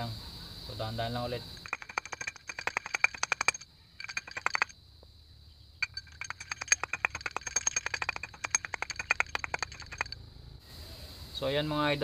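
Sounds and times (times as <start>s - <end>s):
rapid metallic clicks: 1.6s - 4.8s, 5.8s - 10.2s.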